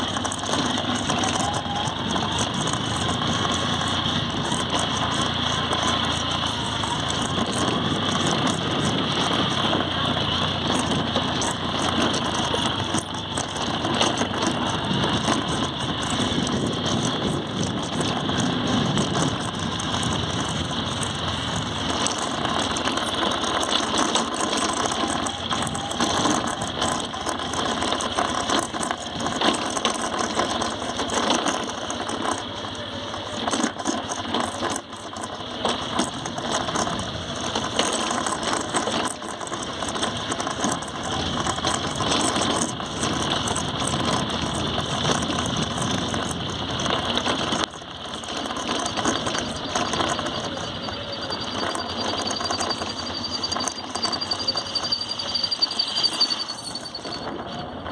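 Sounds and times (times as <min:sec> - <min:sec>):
motorcycle engine running low: 0:00.0 - 0:57.9
motorcycle rattling over bumps: 0:00.0 - 0:57.9.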